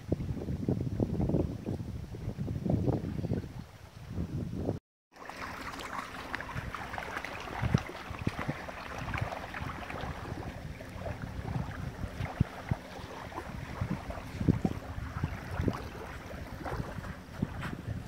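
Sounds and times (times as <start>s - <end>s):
wind buffeting microphone: 0.0s - 4.8s, 6.0s - 18.0s
water splashing and lapping: 5.1s - 18.0s.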